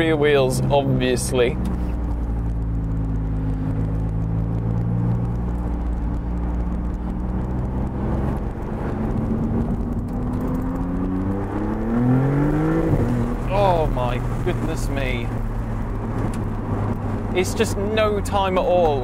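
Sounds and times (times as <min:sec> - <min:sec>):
car engine running: 0:00.0 - 0:19.0.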